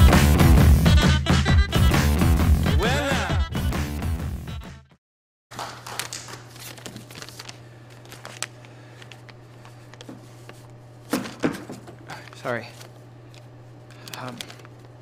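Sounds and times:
paper crinkling and rustling: 5.6 - 15.0
steady low hum: 6.5 - 15.0.

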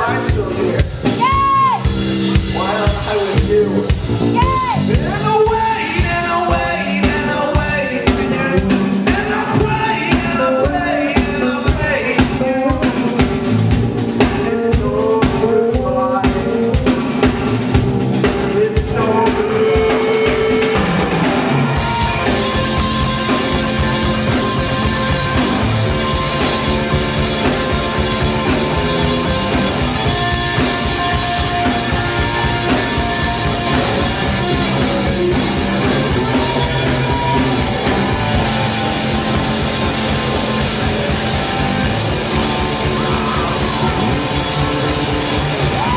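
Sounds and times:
bass guitar: 0.0 - 45.9
drum kit beat: 0.0 - 45.9
electric guitar: 16.1 - 45.9.

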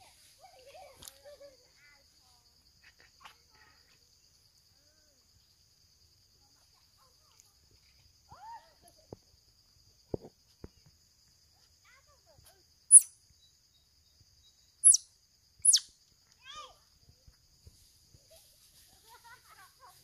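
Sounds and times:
crickets chorus: 0.0 - 20.0
short chirping calls: 12.9 - 16.0.

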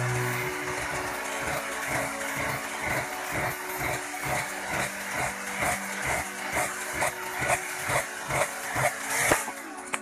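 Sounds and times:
electric drill motor hum: 0.0 - 10.0
blade scraping metal rod: 2.4 - 9.6.

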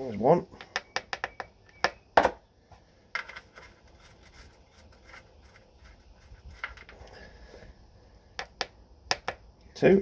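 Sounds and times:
metallic scraping: 3.2 - 7.3.

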